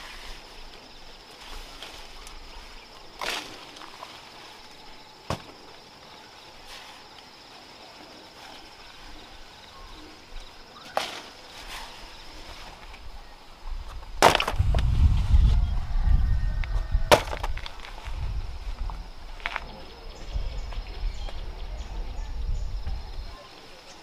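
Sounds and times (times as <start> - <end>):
high insect drone: 0.0 - 24.0
plant stems crunching and splintering: 14.2 - 14.9, 17.1 - 18.2.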